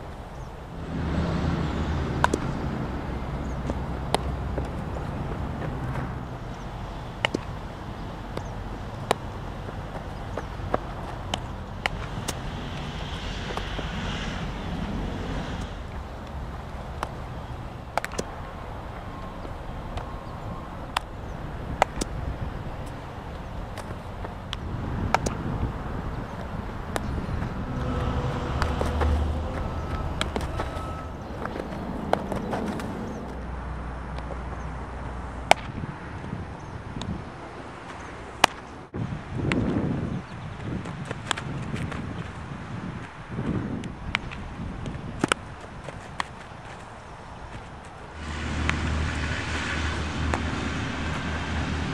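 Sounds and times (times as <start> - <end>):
outdoor background noise: 0.0 - 51.9
wind on microphone: 0.0 - 51.9
baseball cracks: 2.1 - 6.1, 7.0 - 14.2, 15.6 - 27.6, 29.9 - 30.7, 31.3 - 34.5, 35.4 - 35.8, 37.8 - 38.7, 40.8 - 42.3, 44.1 - 48.0.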